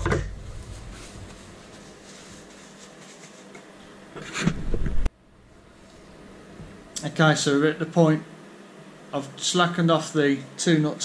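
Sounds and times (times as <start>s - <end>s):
low rumble: 0.0s - 1.7s.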